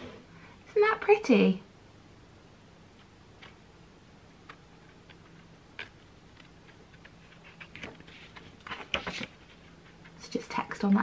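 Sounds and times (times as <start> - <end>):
low steady hum: 0.0 - 11.0
book pages being handled: 2.9 - 3.7, 4.3 - 11.0.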